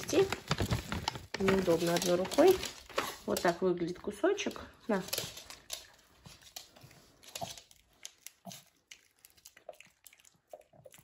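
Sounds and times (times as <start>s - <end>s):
small dog chewing a treat: 7.3s - 11.0s.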